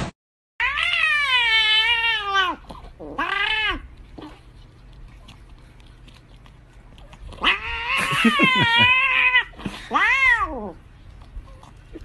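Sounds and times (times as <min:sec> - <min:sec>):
cat meowing: 0:00.6 - 0:03.8, 0:07.4 - 0:10.8.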